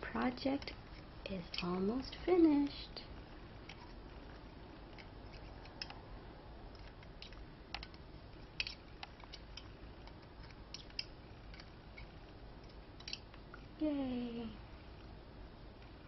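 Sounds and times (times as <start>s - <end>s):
low steady hum: 0.0s - 16.0s
loom hook clicking on pegs: 0.6s - 1.9s.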